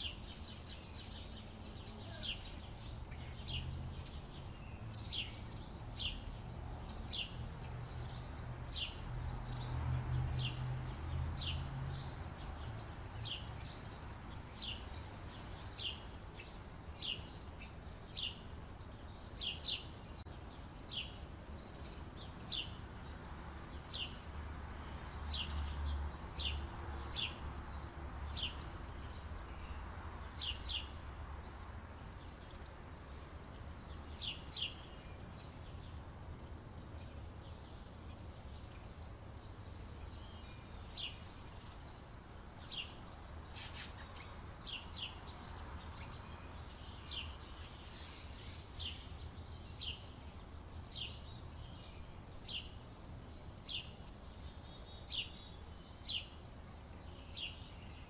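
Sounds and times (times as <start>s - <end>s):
bird chirping: 0.0s - 9.7s, 23.8s - 31.0s, 32.0s - 38.8s, 39.4s - 58.0s.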